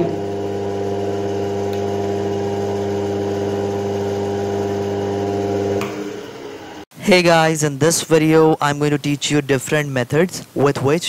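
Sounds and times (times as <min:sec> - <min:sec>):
electrical motor hum: 0:00.0 - 0:06.9.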